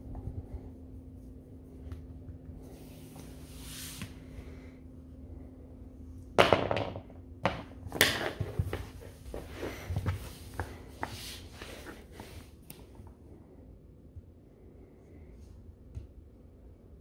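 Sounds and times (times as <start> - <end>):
soft rustle: 0.0 - 4.7, 8.6 - 13.1
puppy scuffs and knocks: 7.5 - 12.3.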